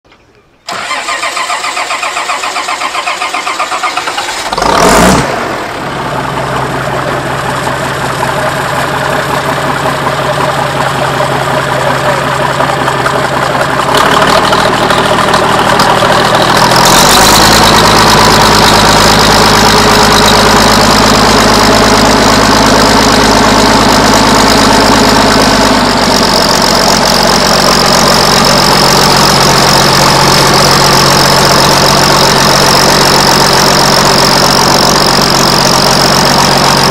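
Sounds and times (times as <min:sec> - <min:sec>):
tractor engine starting and idling: 0:00.1 - 0:36.9
starter motor cranking: 0:00.7 - 0:05.2.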